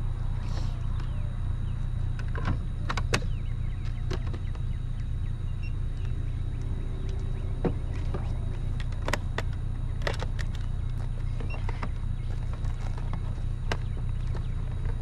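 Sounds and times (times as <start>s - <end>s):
engine idling: 0.0s - 15.0s
clicks and knocks of gear: 6.0s - 15.0s.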